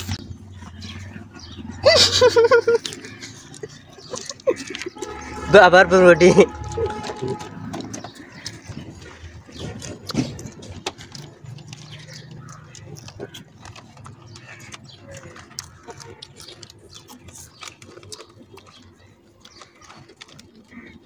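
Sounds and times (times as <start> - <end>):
crunchy chewing: 0.0 - 5.5, 6.3 - 21.0.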